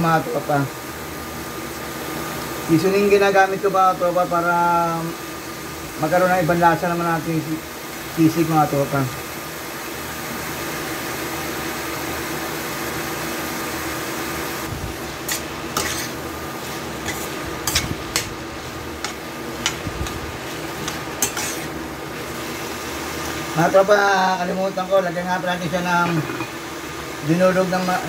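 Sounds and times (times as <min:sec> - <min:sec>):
induction cooker hum: 0:00.0 - 0:28.0
metal spatula scraping a pan: 0:15.2 - 0:21.8.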